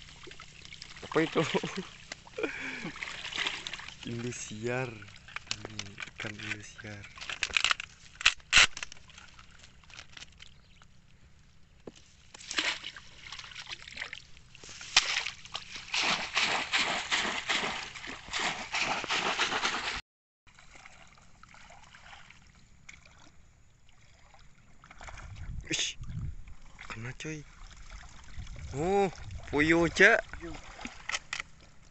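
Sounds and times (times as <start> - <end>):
water trickling: 0.0 - 7.8, 20.5 - 31.8
water sloshing and splashing: 0.0 - 11.0, 11.9 - 31.9.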